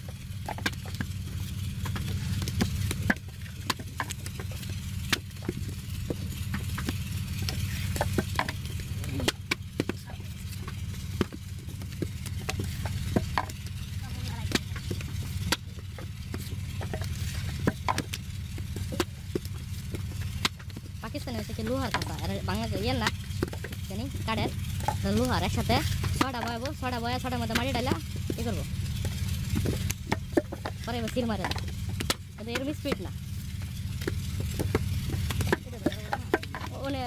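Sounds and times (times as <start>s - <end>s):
steady low rumble: 0.0s - 37.0s.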